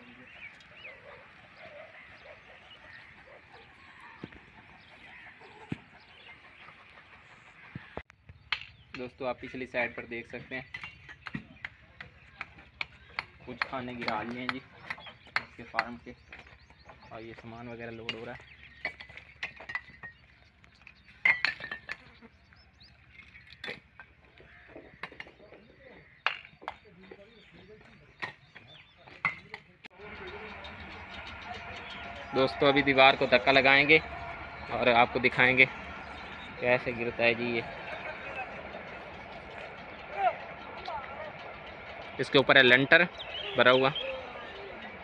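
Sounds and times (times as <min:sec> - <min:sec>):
small birds chirping: 0:00.0 - 0:45.0
bricks and poles knocking together: 0:21.1 - 0:22.1.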